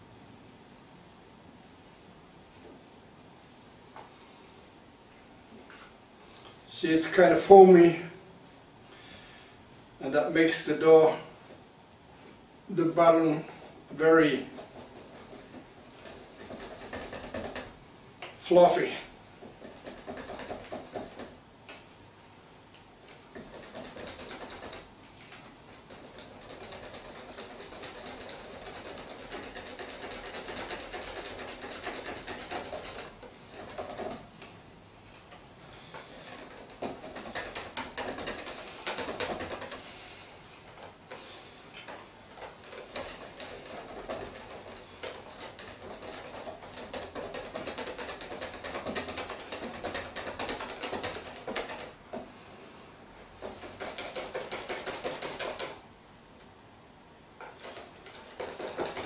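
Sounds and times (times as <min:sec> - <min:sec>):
whisk beating batter in bowl: 0:14.2 - 0:17.8, 0:19.4 - 0:21.4, 0:23.3 - 0:24.9, 0:25.7 - 0:34.3, 0:35.8 - 0:39.9, 0:41.8 - 0:52.2, 0:53.3 - 0:55.8, 0:57.4 - 0:59.0.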